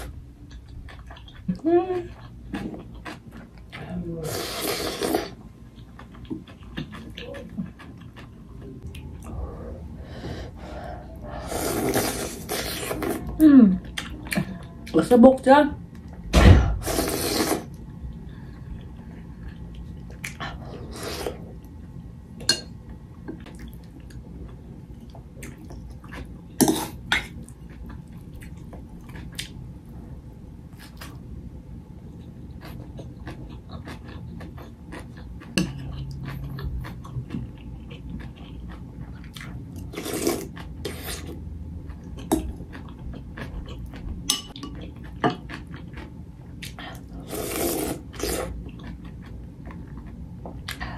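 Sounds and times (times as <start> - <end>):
chewing: 32.2 - 47.1, 47.7 - 50.9.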